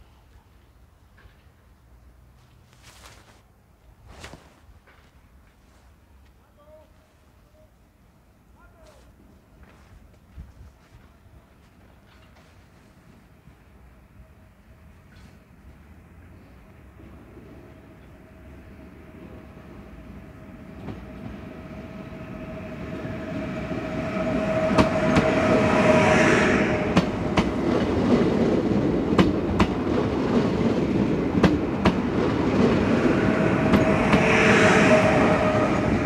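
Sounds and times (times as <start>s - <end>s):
train running rumble: 16.9s - 36.0s.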